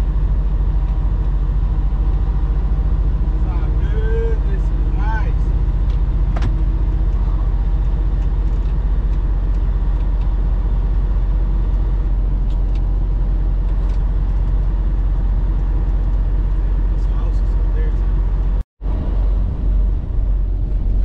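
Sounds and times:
road noise: 0:00.0 - 0:21.0
truck diesel engine droning: 0:00.0 - 0:21.0.

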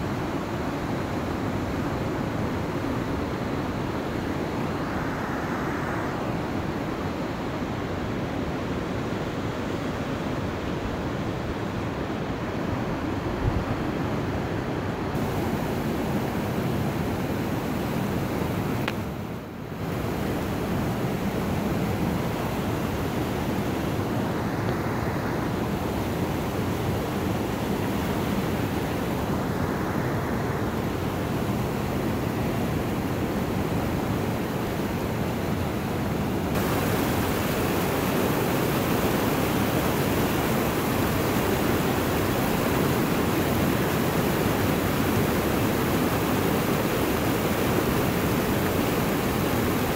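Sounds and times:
river rapids rushing: 0:15.2 - 0:18.8, 0:19.8 - 0:49.9.

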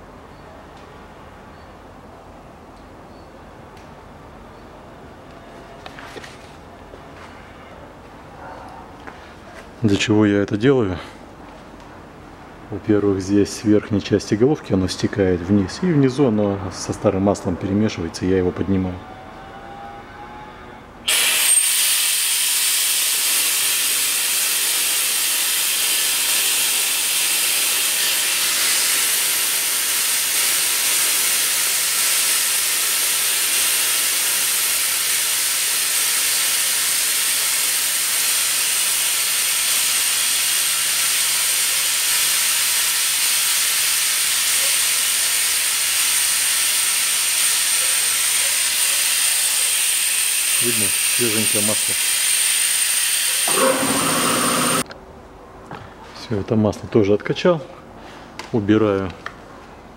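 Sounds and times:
vacuum oil extractor hissing: 0:21.1 - 0:54.9.

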